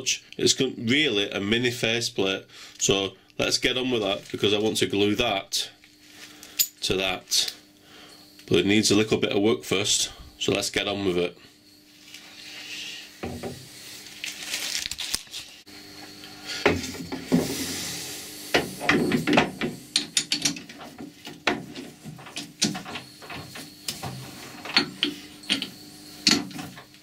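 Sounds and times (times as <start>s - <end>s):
metal clicks knocks and scrapes: 18.6s - 26.9s.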